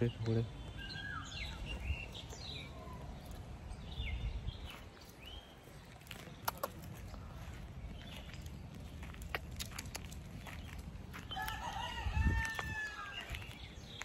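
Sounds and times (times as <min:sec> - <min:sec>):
rooster crowing: 0:11.3 - 0:13.4.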